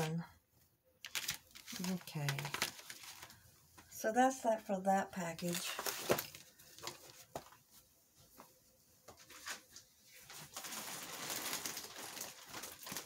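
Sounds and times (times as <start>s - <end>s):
plastic packaging crinkling: 1.0s - 3.4s, 5.2s - 7.6s, 9.3s - 13.0s.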